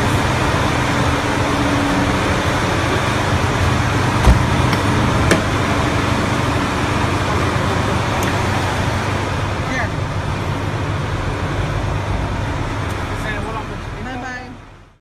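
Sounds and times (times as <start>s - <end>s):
engine rumble: 0.0s - 15.0s
road noise: 0.0s - 15.0s
heavy thump: 4.2s - 5.5s.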